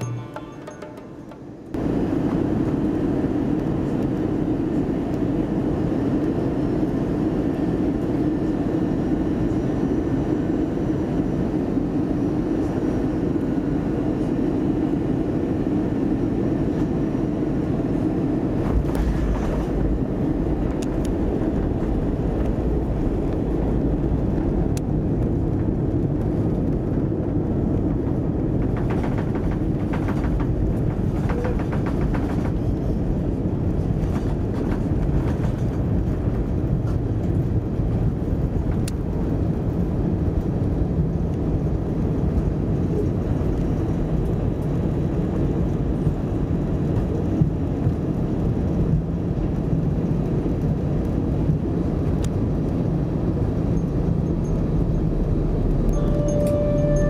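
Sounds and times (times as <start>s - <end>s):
aircraft cabin rumble: 0.9s - 57.0s
faint clicks and rattles: 28.5s - 33.2s.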